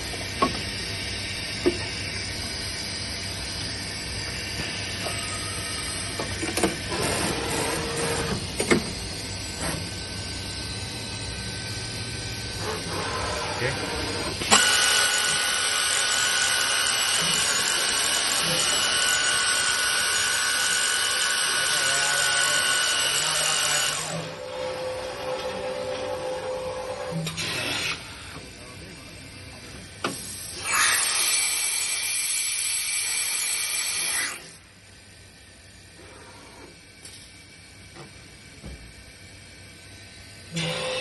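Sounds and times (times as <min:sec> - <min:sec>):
cnc machine whine and rushing: 0:00.0 - 0:30.0, 0:40.5 - 0:41.0.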